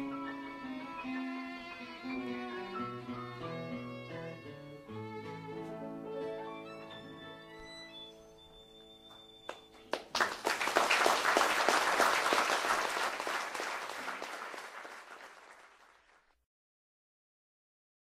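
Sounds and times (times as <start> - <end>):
audience applauding: 9.2 - 16.3.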